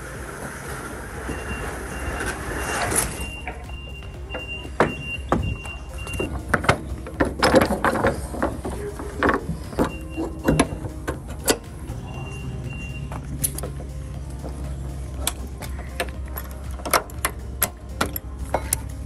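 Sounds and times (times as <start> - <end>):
low engine hum: 0.0 - 19.0
high warning beeper: 1.2 - 6.3, 9.8 - 13.4
knocks and clatters: 2.3 - 11.9.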